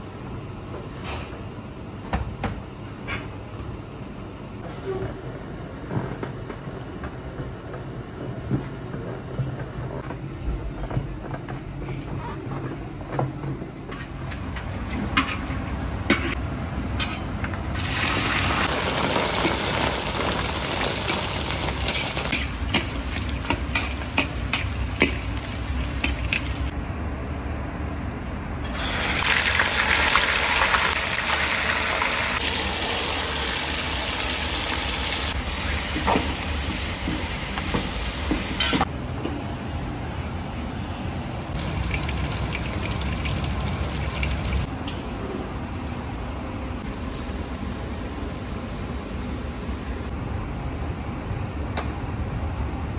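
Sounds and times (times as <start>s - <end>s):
meat sizzling in hot oil: 17.8s - 22.4s, 28.7s - 35.9s, 41.6s - 44.6s.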